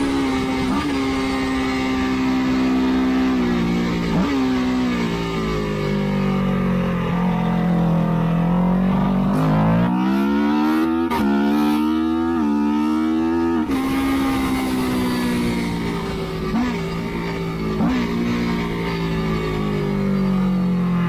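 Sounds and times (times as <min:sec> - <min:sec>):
racing motorcycle engine: 0:00.0 - 0:21.0.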